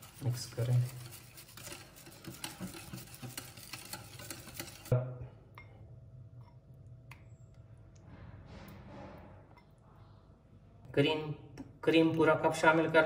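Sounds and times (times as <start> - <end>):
whisk beating in ceramic bowl: 0.0 - 4.9.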